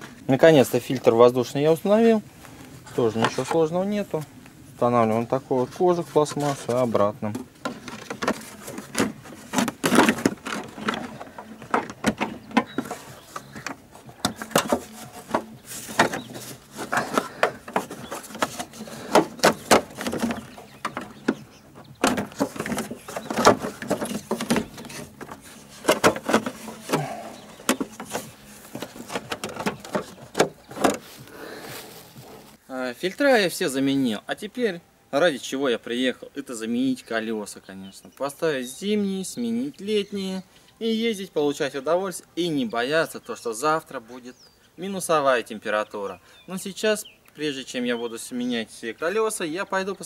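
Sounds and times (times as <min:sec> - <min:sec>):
plastic clicks and scraping: 0:06.3 - 0:31.1.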